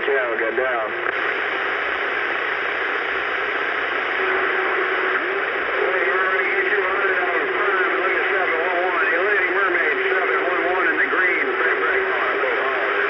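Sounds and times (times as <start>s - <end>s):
garbled radio voices: 0.0s - 1.1s, 4.2s - 13.0s
radio static hiss: 0.0s - 13.0s.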